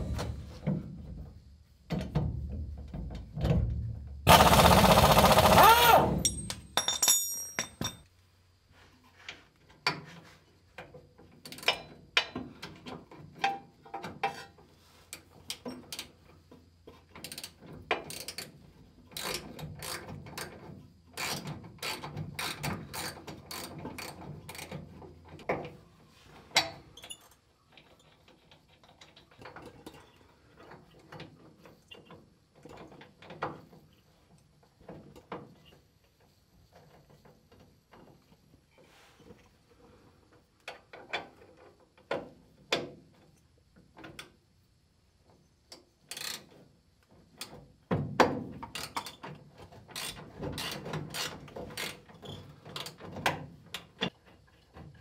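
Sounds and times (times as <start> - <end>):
loud burst of noise: 4.3 - 6.2
metal clinks: 6.2 - 8.1.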